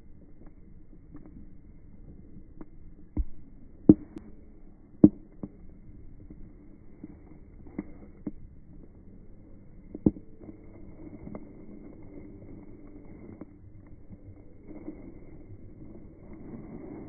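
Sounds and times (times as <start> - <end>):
bonfire crackling and popping: 0.0 - 17.0.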